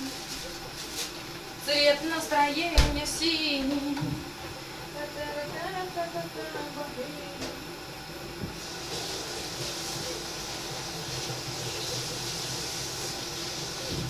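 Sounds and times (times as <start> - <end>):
omelette sizzling in frying pan: 8.6 - 14.0.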